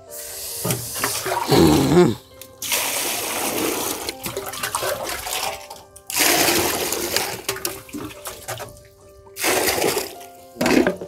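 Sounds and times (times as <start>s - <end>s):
water pouring into bucket: 0.2s - 11.0s.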